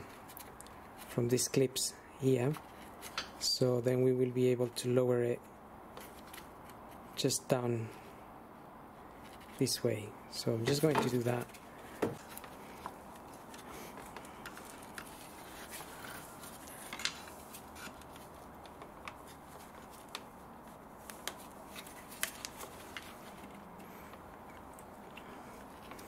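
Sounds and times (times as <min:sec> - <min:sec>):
faint steady background noise: 0:00.0 - 0:26.0.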